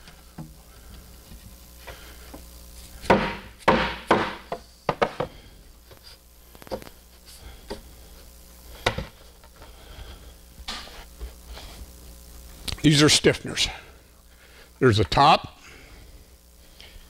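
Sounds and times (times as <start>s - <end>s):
hammer thuds on wood: 3.1s - 5.3s.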